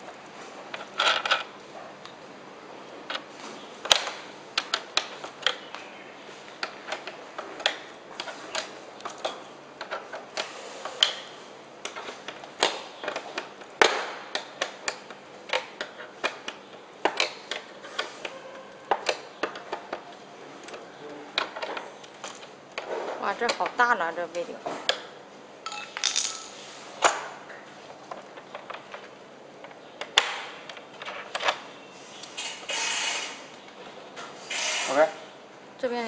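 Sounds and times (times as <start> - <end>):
clicks and knocks of locks: 6.5 - 23.8.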